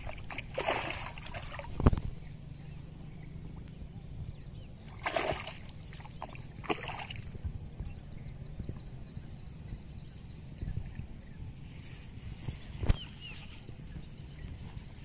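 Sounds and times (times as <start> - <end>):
muddy water sloshing and splashing: 0.0 - 2.3, 4.8 - 7.5.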